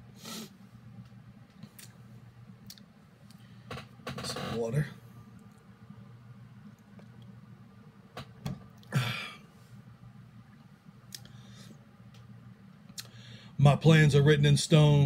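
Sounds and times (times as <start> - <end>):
low room hum: 0.0 - 15.0
breathy exhale: 13.1 - 13.6.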